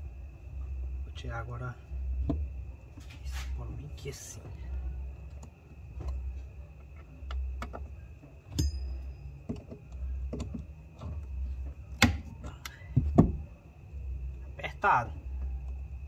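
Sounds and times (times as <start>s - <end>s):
battery cables clicking and knocking: 9.4s - 13.5s.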